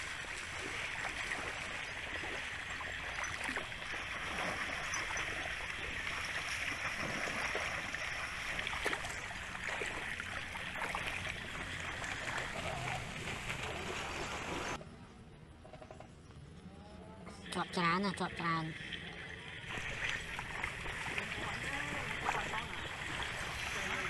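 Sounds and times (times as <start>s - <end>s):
water splashing and dripping: 0.0s - 14.8s, 17.4s - 24.0s.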